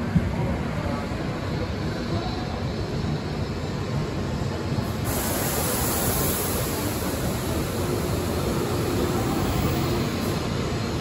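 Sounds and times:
train rushing past: 0:00.0 - 0:11.0
high hiss: 0:04.7 - 0:11.0.

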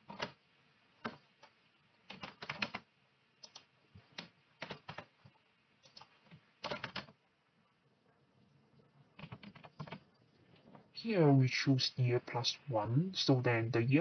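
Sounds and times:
computer keyboard typing: 0:00.1 - 0:00.4, 0:02.1 - 0:02.8, 0:03.4 - 0:05.1, 0:05.8 - 0:07.2, 0:09.2 - 0:10.1.

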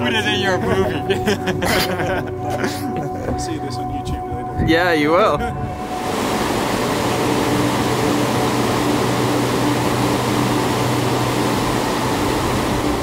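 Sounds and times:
water rushing over rocks: 0:05.8 - 0:13.0.

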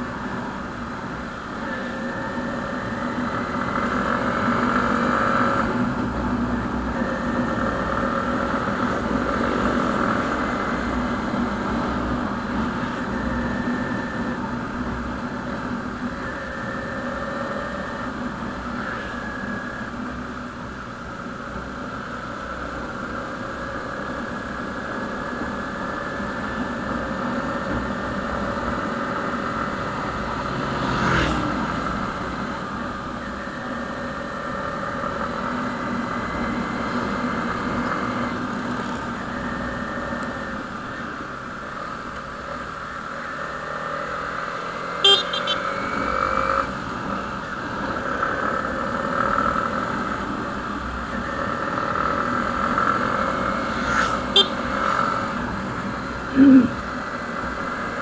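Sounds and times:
motorcycle engine cruising: 0:00.0 - 0:58.0
wind and road noise: 0:00.0 - 0:58.0.

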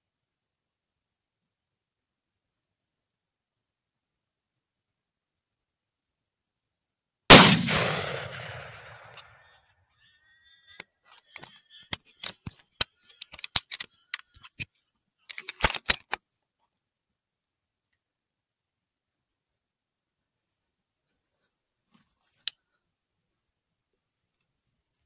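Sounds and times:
rifle shot echoing: 0:07.3 - 0:09.2.

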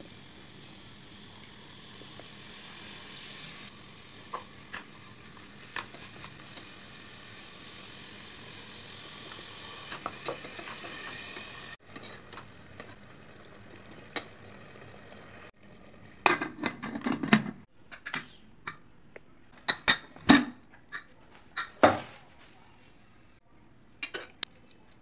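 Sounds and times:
gravy sizzling: 0:00.0 - 0:16.7.

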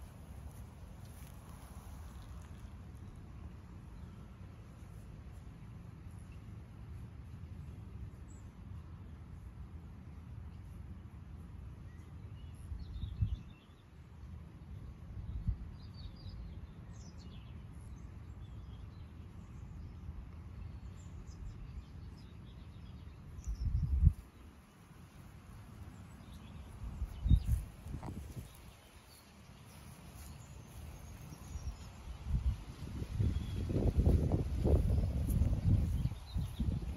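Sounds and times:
small birds chirping: 0:15.3 - 0:36.9
steady low rumble: 0:23.3 - 0:36.9.

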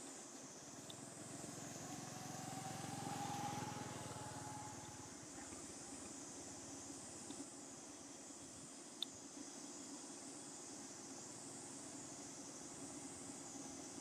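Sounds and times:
steady high hiss: 0:00.0 - 0:14.0
vehicle engine passing by: 0:01.0 - 0:05.6.

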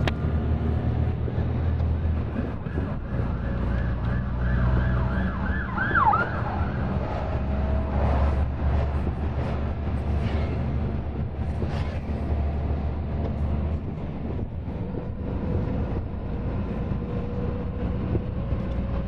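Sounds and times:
diesel truck engine droning: 0:00.0 - 0:19.0.

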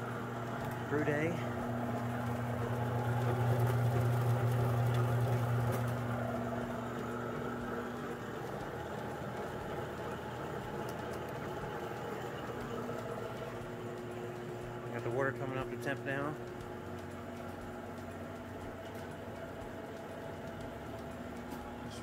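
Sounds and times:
electric motor hum: 0:00.0 - 0:22.0
grain rattling through rollers: 0:00.6 - 0:07.7.

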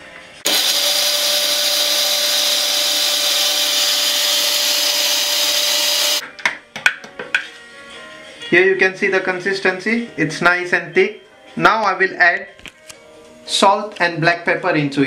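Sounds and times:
blender motor running: 0:00.5 - 0:06.2.

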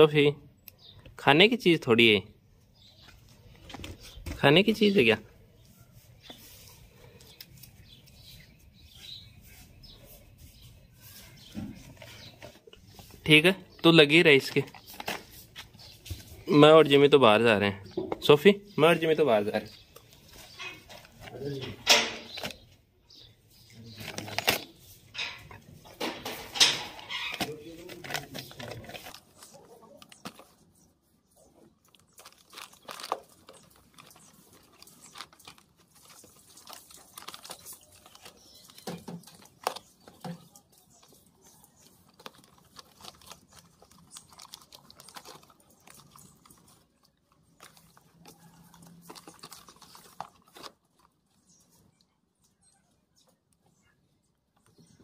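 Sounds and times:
cardboard and paper crinkling: 0:03.0 - 0:16.9, 0:19.4 - 0:22.8, 0:23.9 - 0:51.9
dog chewing cardboard box: 0:31.9 - 0:51.6.

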